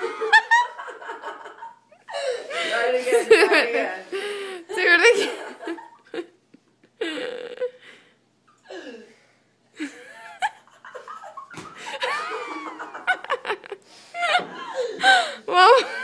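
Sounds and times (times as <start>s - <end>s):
young women laughing: 0.0s - 3.8s, 9.8s - 16.0s.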